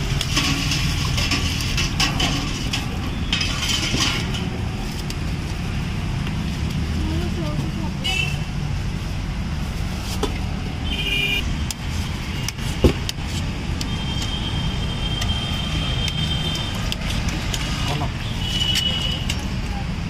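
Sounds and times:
steel plates and bowls clinking: 0.0 - 4.8
road traffic rumble: 0.0 - 20.0.

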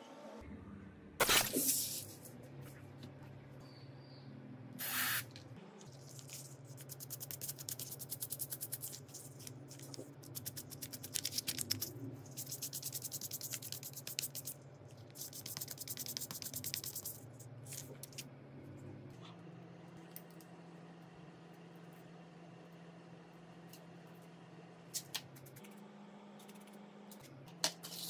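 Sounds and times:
spray hiss: 4.8 - 5.2.

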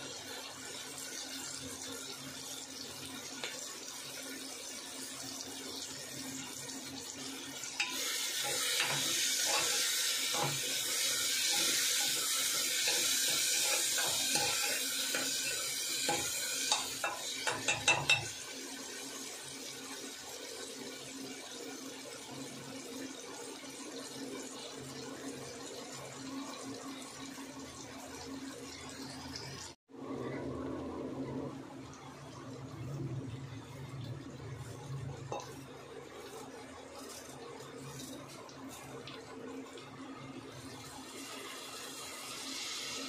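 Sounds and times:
vegetables sizzling in pot: 0.0 - 29.8, 31.2 - 43.0
metal spoon stirring: 7.8 - 10.6, 11.4 - 18.3
spoon tapping metal pot: 12.8 - 18.4.

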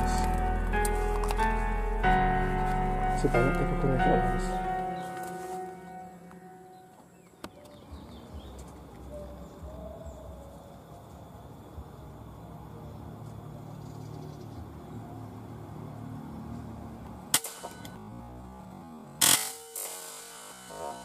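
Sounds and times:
low steady rumble: 0.0 - 5.0.

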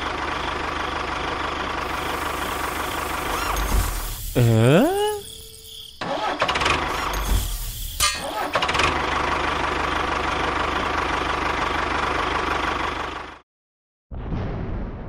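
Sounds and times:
tractor engine chugging: 0.0 - 13.4
boom: 14.1 - 15.0.

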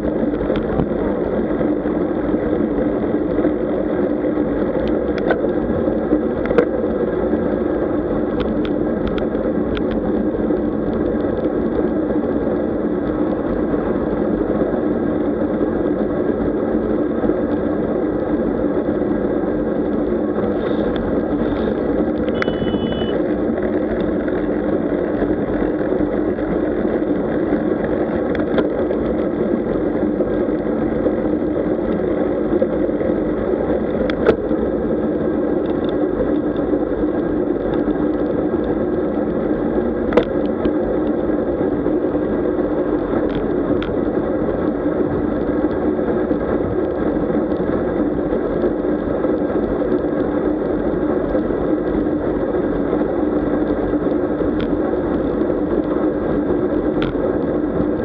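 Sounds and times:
wind and road rumble: 0.0 - 58.0
brief high tone: 22.3 - 23.2.

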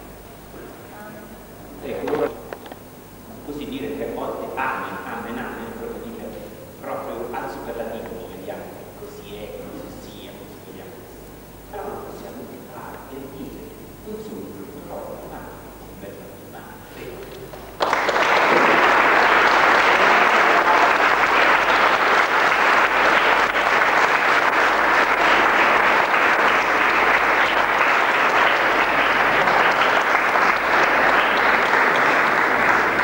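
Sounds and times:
crowd applauding: 17.8 - 33.0.

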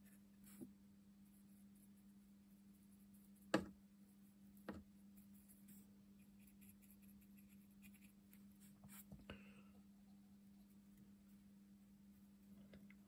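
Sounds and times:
low steady hum: 0.0 - 13.0
paintbrush tapping on paint pot: 3.5 - 3.8.

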